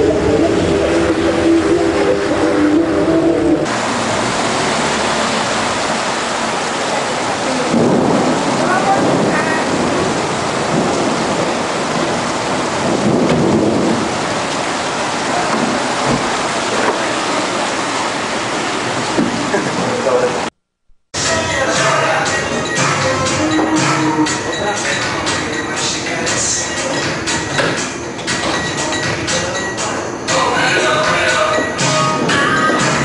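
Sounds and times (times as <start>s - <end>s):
heavy rain pouring: 0.0s - 20.6s, 21.2s - 33.0s.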